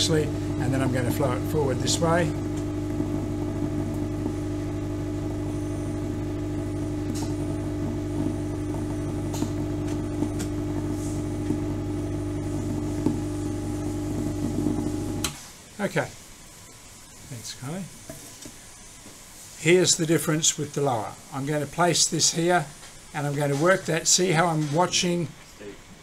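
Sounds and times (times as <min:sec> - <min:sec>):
vibrator machine humming: 0:00.0 - 0:15.4.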